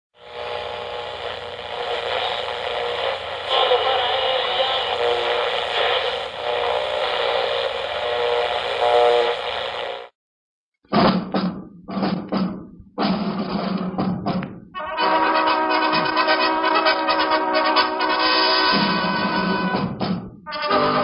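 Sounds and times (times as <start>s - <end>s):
radio hiss: 0.2s - 10.1s
steady radio tones: 0.2s - 10.1s.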